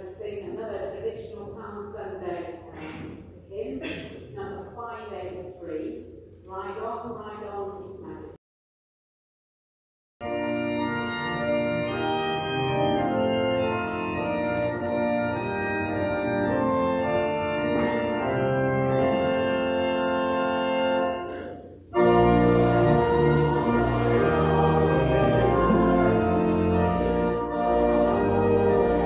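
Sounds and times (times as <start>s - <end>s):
church organ playing chords: 10.2s - 29.0s
deep bass organ notes: 10.2s - 29.0s.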